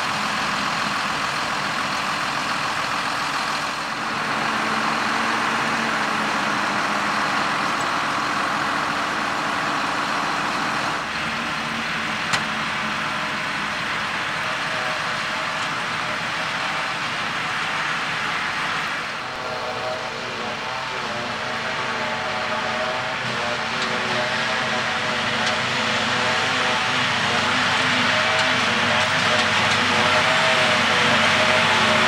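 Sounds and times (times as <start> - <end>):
tractor diesel engines running: 0.0 - 32.0.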